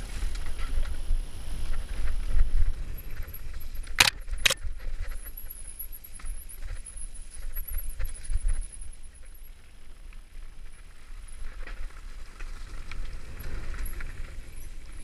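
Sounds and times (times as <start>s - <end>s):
mountain bike rattling: 0.0s - 15.0s.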